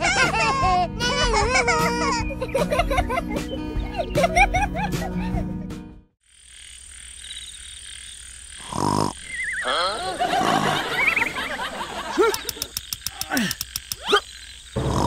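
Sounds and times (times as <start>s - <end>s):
animal croaking: 6.5s - 11.4s, 13.1s - 15.0s
squeaky gliding calls: 9.2s - 10.1s
run of clicks: 12.1s - 14.2s.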